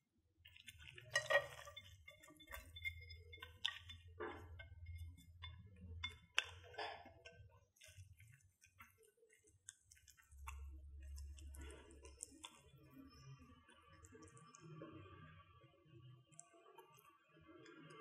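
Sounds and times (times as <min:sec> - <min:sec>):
spatula tapping frying pan: 0:01.1 - 0:08.9.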